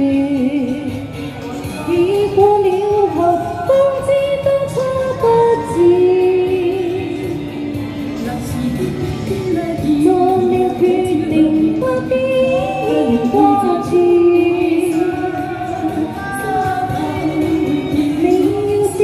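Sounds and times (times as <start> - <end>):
pop backing track from amplifier: 0.0 - 19.0
woman singing: 0.0 - 19.0.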